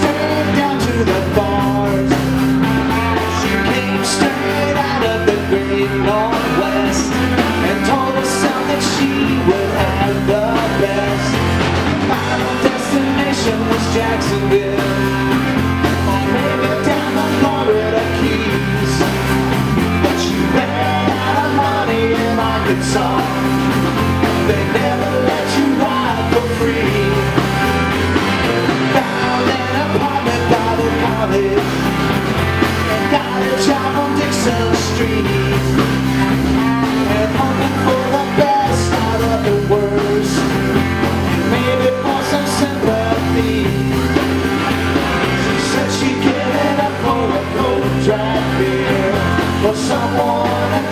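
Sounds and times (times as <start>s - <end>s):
person singing: 0.0s - 27.8s, 28.4s - 44.2s, 45.2s - 50.9s
bass line: 0.0s - 50.9s
drums: 0.0s - 50.9s
electric guitars: 0.0s - 50.9s.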